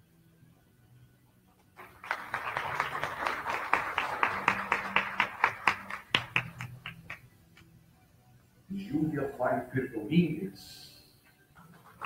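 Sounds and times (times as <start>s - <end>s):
audience applauding: 1.8s - 7.2s, 11.7s - 12.0s
loud single claps: 1.8s - 7.2s.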